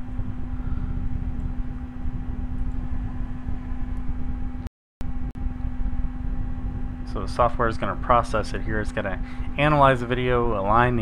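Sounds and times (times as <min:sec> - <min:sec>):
steady hum with low rumble: 0:00.0 - 0:11.0.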